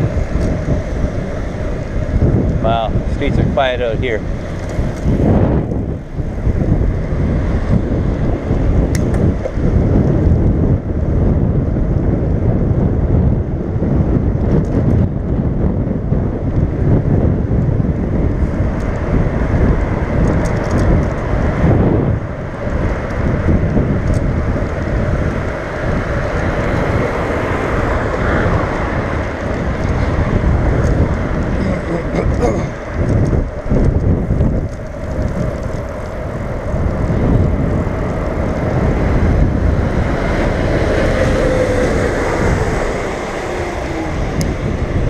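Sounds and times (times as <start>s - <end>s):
wind buffeting microphone: 0.0s - 45.0s.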